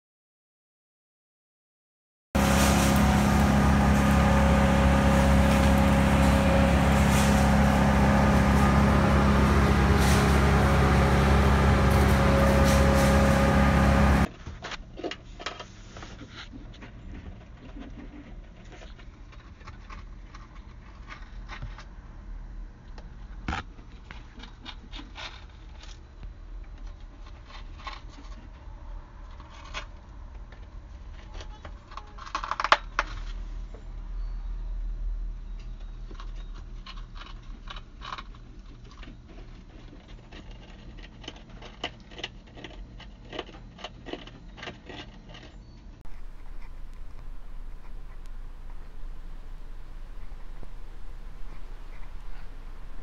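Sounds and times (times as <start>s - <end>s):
steady low hum: 2.4s - 14.3s, 46.0s - 53.0s
parrots chewing wood: 46.1s - 53.0s.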